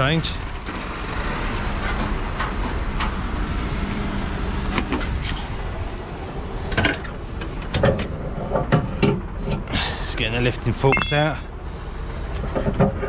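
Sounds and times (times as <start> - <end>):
diesel truck engine running: 0.0 - 13.0.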